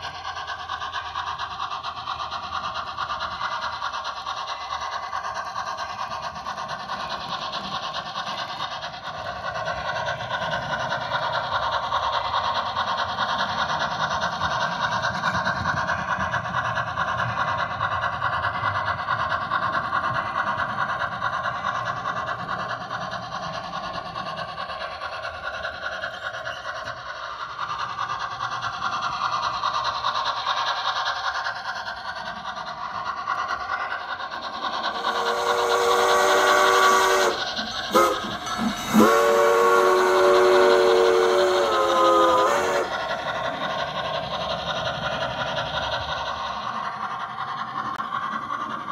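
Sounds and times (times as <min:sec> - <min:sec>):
model steam locomotive running: 0:00.0 - 0:48.9
steam whistle chord: 0:35.2 - 0:38.2, 0:38.9 - 0:42.9.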